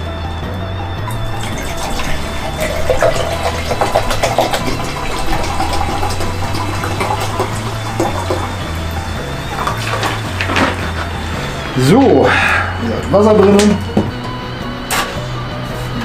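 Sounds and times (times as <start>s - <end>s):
background music with bass line: 0.0s - 16.0s
water pouring into steel pot: 1.1s - 10.8s.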